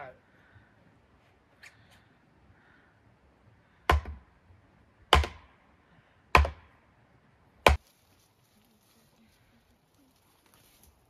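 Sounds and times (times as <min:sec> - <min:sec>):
hammer striking wooden post: 0:03.8 - 0:04.3, 0:05.1 - 0:05.6, 0:06.3 - 0:06.8, 0:07.6 - 0:07.8.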